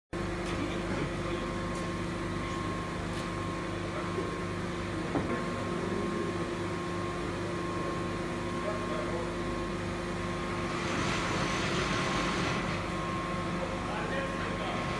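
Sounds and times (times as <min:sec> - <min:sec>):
hot press machine humming: 0:00.2 - 0:14.9.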